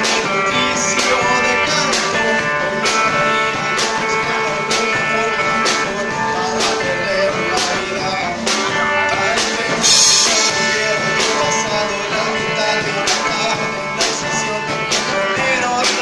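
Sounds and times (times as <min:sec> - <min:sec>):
rock band playing: 0:00.0 - 0:16.0
burst of hiss: 0:09.8 - 0:10.6.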